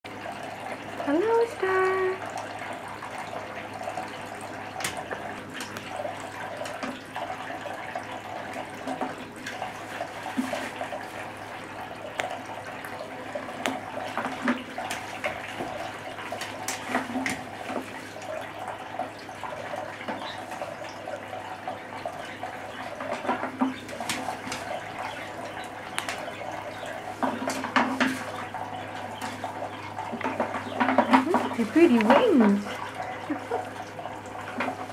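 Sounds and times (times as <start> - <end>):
fountain water trickling: 0.1 - 34.9
bird splashing in water: 8.3 - 33.2.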